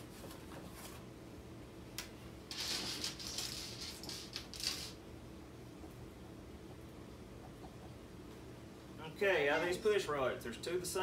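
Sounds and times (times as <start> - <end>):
thin plastic crinkling: 2.5 - 5.0.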